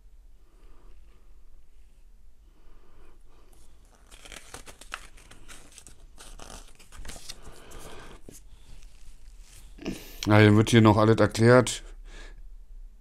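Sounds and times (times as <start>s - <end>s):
paper rustling and crinkling: 3.5s - 9.8s.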